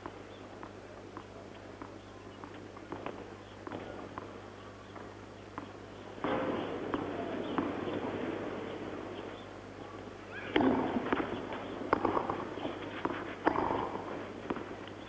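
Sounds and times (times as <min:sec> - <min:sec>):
spectators murmuring: 0:00.0 - 0:15.0
tennis ball bouncing: 0:10.5 - 0:15.0
racket hitting tennis ball: 0:10.6 - 0:14.7.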